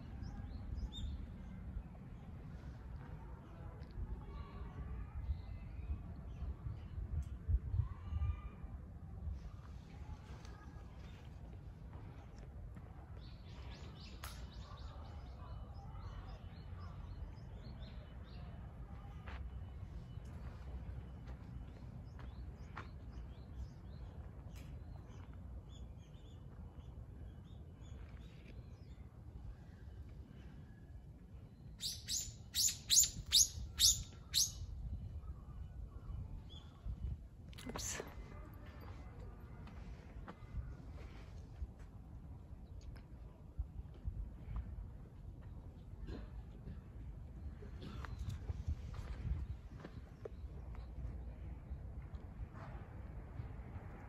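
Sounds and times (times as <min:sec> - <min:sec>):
small birds chirping: 0:31.4 - 0:38.0
bird chirping: 0:31.6 - 0:34.6.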